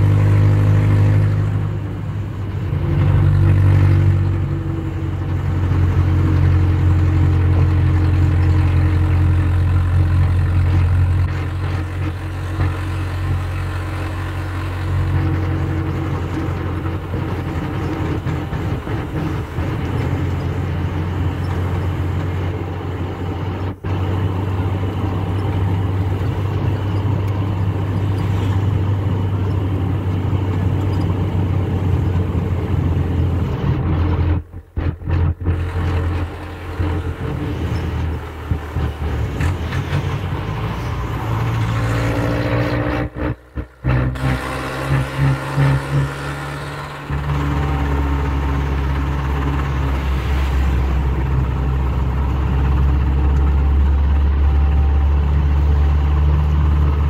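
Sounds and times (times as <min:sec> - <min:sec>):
vehicle engine and road noise: 0:00.0 - 0:57.0
higher engine note: 0:31.9 - 0:57.0.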